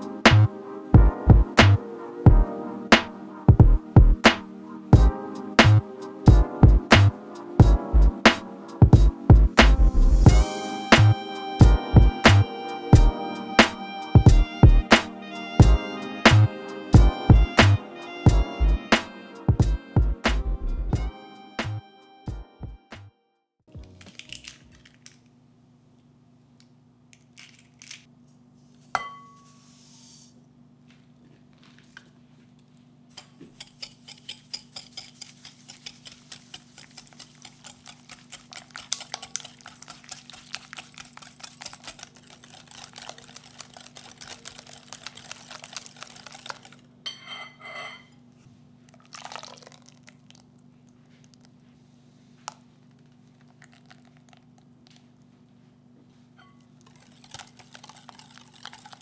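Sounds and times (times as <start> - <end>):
sharp glass clink: 29.0 - 29.5, 47.1 - 48.1
whisk taps: 33.2 - 46.8
whisk beating in glass bowl: 33.5 - 46.8, 56.4 - 59.0.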